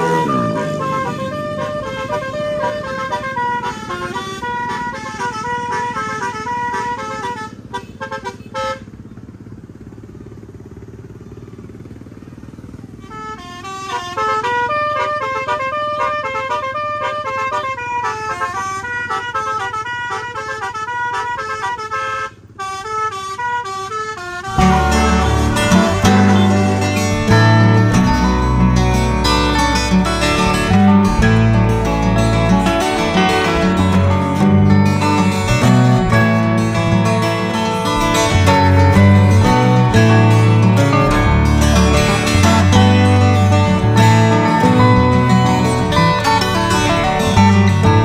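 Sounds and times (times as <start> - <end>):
strummed guitar music: 0.0 - 7.4, 24.4 - 48.0
bus air horn playing a tune: 0.0 - 9.0, 12.9 - 48.0
low engine rumble: 0.0 - 48.0.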